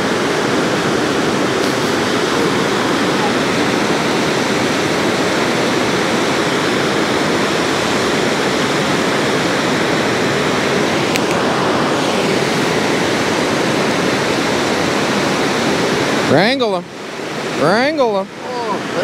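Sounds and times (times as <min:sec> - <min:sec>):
water rushing over spillway: 0:00.0 - 0:19.0.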